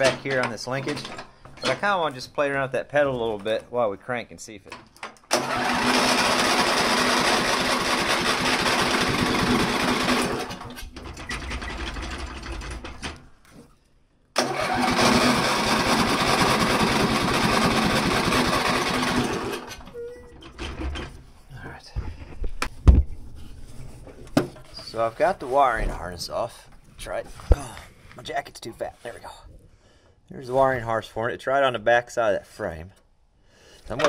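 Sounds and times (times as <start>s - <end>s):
mower engine cranking and running: 5.1s - 13.3s, 14.4s - 21.2s.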